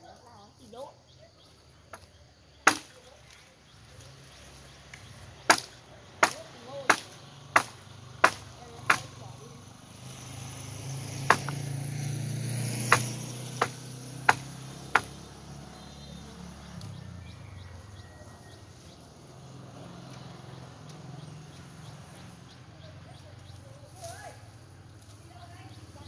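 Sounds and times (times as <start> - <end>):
blade chopping into bamboo: 2.7 - 3.0, 5.4 - 9.1, 11.2 - 11.6, 12.7 - 15.2.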